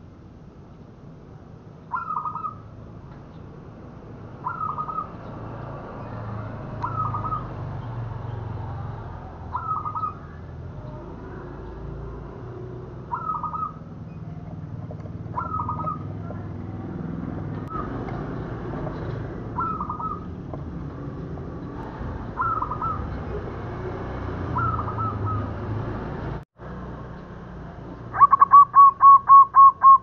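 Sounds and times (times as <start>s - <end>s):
dove cooing: 4.4s - 5.1s, 6.8s - 7.5s, 9.5s - 11.6s, 13.0s - 16.5s, 19.5s - 20.4s, 22.3s - 23.4s, 24.5s - 25.6s, 28.1s - 30.0s.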